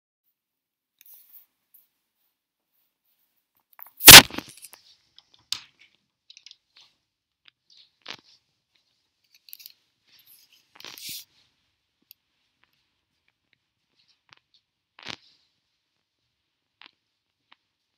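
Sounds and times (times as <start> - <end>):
camera rustling against clothing: 3.9 - 4.9.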